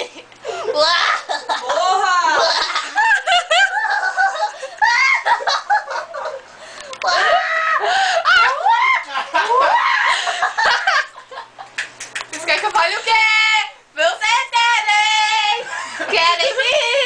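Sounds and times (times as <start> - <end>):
woman laughing: 0.0 - 11.8, 15.6 - 17.0
electric fan running: 0.0 - 17.0.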